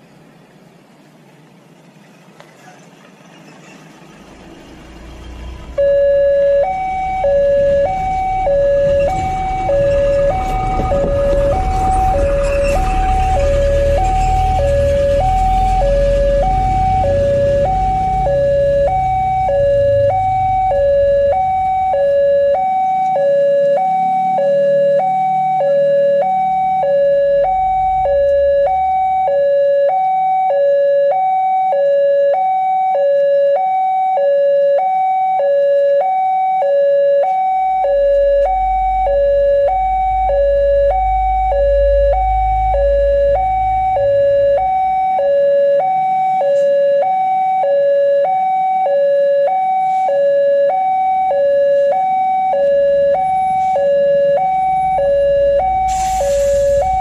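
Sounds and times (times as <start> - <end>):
low rumble: 4.2 - 23.2, 23.9 - 29.3, 37.6 - 45.3
two-tone crossing alarm: 4.2 - 57.0.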